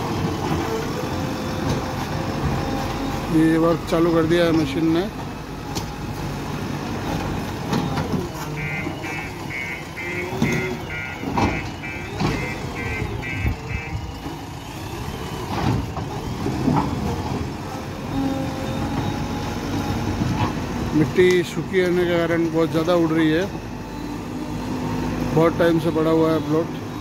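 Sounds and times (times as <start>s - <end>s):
diesel engine running under load: 0.0s - 27.0s
reversing alarm beeps: 8.6s - 14.4s.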